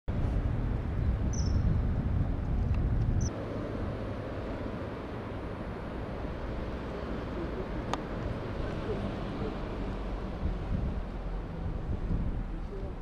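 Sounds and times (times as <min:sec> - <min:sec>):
high-pitched bird chirps: 0:01.3 - 0:01.7
shallow river water running: 0:03.3 - 0:13.0
low rumble: 0:07.6 - 0:12.9.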